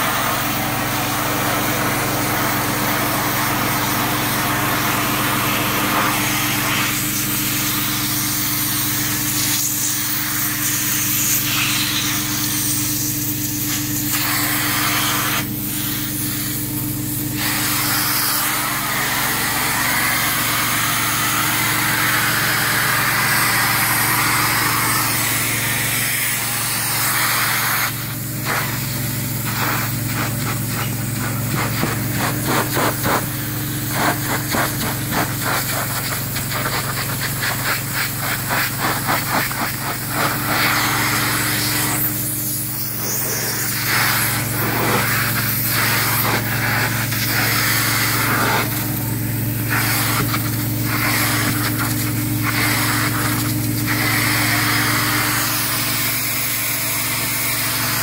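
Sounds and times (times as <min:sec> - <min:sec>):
carpet-cleaning machine drone: 0:00.0 - 0:58.0
tool scrubbing upholstery: 0:00.0 - 0:58.0.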